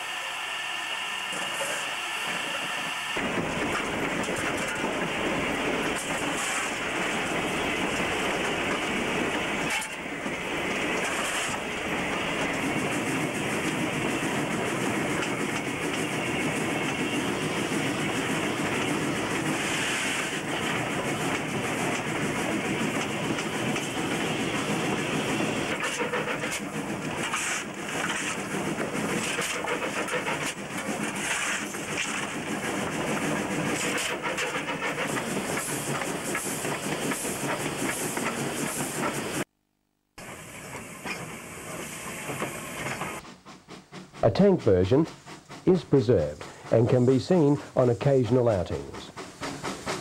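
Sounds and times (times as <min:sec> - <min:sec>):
steam locomotive running: 0:00.0 - 0:39.5, 0:40.2 - 0:50.0
wheels clacking over rail joints: 0:03.2 - 0:39.2.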